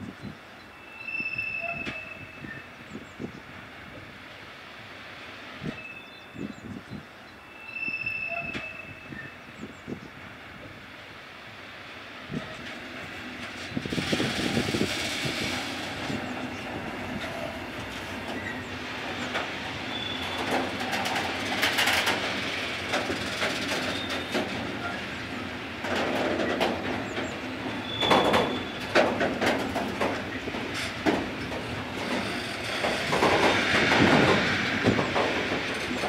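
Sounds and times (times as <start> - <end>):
high-pitched wheel squeals: 0.8 - 2.7, 7.4 - 9.4, 19.9 - 20.5, 27.8 - 28.9
train wheels clacking over rail joints: 12.4 - 36.0.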